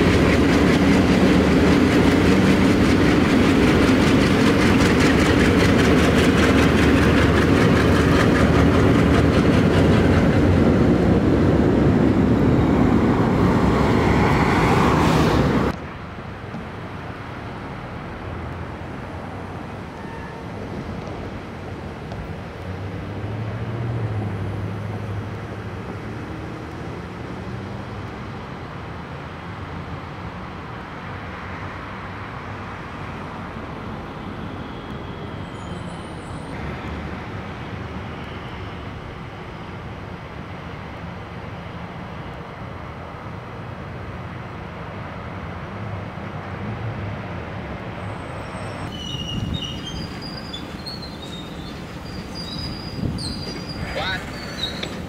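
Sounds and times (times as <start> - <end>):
diesel locomotive engines running: 0.0 - 16.7, 47.3 - 55.0
train wheels on rail: 0.0 - 17.0, 47.9 - 55.0
distant locomotive rumble: 0.0 - 27.2, 36.5 - 55.0.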